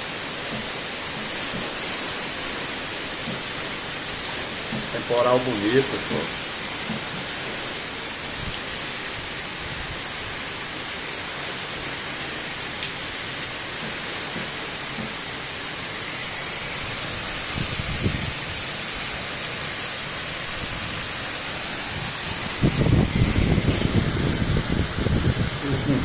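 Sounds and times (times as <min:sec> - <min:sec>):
heavy rain downpour: 0:00.0 - 0:26.0
low thunder rumble: 0:22.3 - 0:26.0.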